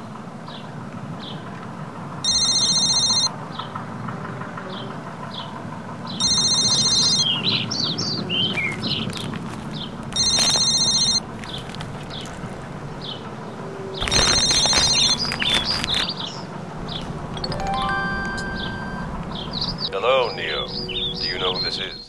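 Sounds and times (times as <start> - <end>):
phone ringing: 2.2 - 3.3, 6.2 - 8.2, 10.1 - 11.3, 17.2 - 20.4
birds chirping: 4.7 - 22.0.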